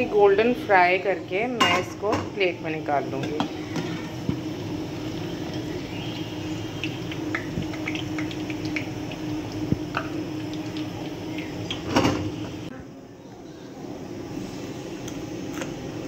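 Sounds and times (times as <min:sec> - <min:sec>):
fritters sizzling in hot oil: 0:01.4 - 0:12.7.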